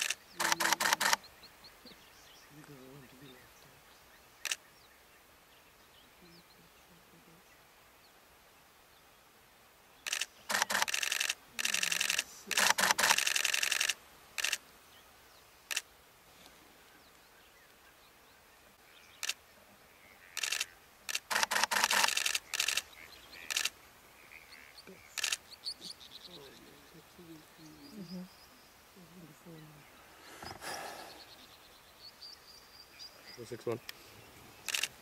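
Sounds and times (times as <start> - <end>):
camera shutters clicking: 0.0 - 1.2, 10.1 - 14.6, 20.4 - 22.8, 23.5 - 23.7, 34.7 - 35.0.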